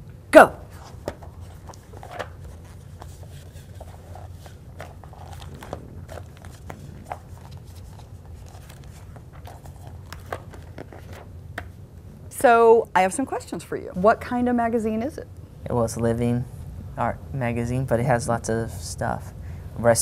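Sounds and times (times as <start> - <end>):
low steady hum: 0.0 - 20.0
magazine pages flipping: 0.7 - 11.8.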